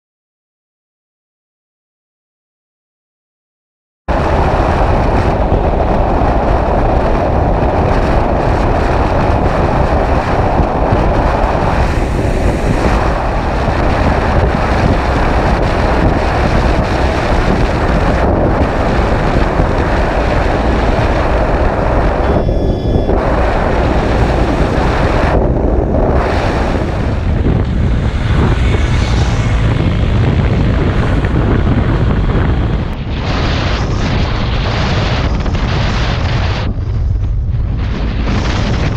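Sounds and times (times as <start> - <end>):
wind buffeting microphone: 4.1 - 38.9
motorcycle engine: 4.2 - 33.0.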